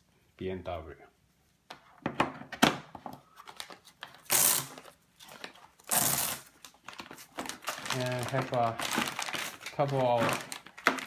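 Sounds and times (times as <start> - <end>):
plastic bags crinkling: 3.5 - 11.0.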